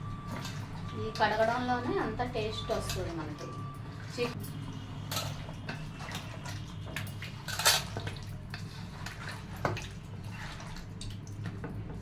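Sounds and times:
water splashes: 0:04.8 - 0:11.6.

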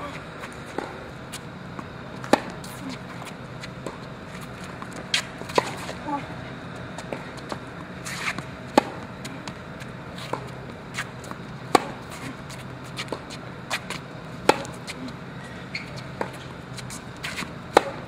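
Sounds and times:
tennis racket hitting ball: 0:02.2 - 0:06.0, 0:07.0 - 0:15.1, 0:15.8 - 0:18.0.

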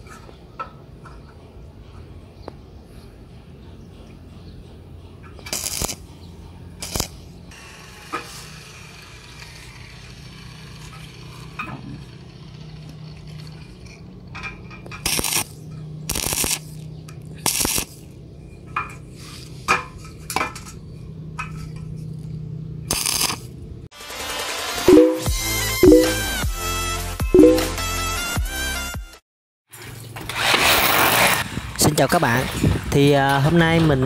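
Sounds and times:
arc welding sizzle: 0:05.5 - 0:06.0, 0:06.8 - 0:11.6, 0:15.0 - 0:16.8, 0:17.4 - 0:18.0, 0:22.9 - 0:23.5.

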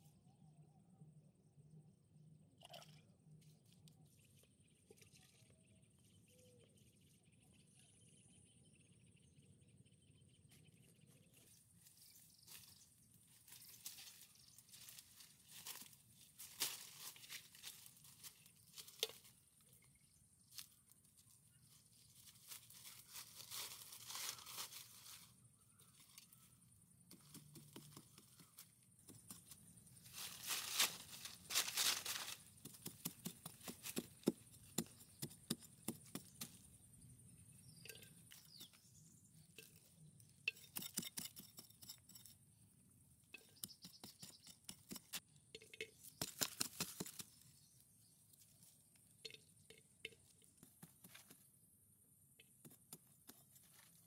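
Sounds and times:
dry leaves and brush rustling: 0:11.4 - 0:19.8, 0:20.4 - 0:35.2
twigs crackling and snapping: 0:30.2 - 0:34.0.

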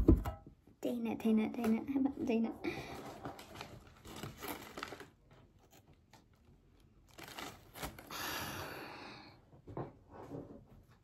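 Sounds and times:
packaging rustling and tearing: 0:03.0 - 0:08.1.

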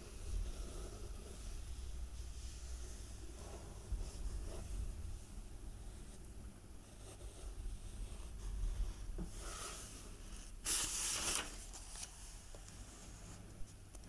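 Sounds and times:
book page turning: 0:10.6 - 0:12.8.

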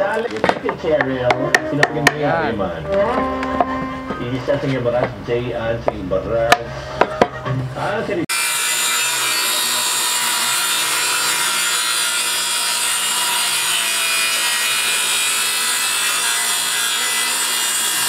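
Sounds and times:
circular saw cutting plywood: 0:08.3 - 0:18.0.

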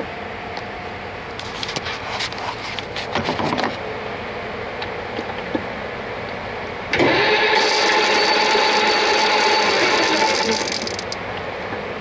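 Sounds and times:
lathe humming: 0:06.9 - 0:11.2.

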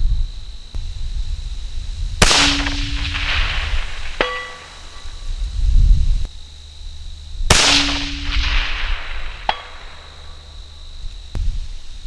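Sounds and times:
rifle shot echoing: 0:02.2 - 0:05.2, 0:07.5 - 0:10.4
steel plate ringing: 0:02.3 - 0:05.3.

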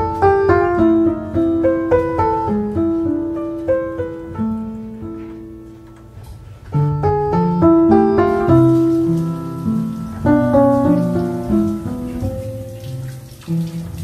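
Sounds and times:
gentle solo piano: 0:00.0 - 0:14.0
kitchen faucet running: 0:07.9 - 0:14.0.

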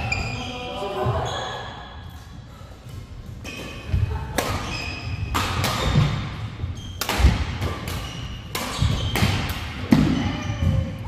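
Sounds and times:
rackets hitting shuttlecock: 0:03.4 - 0:11.0.

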